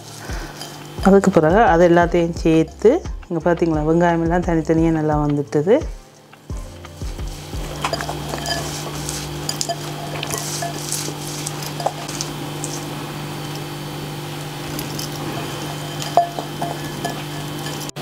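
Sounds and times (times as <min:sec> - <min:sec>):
steady low hum: 0:00.0 - 0:18.0
glass bowl clinking: 0:07.5 - 0:13.8, 0:14.6 - 0:18.0.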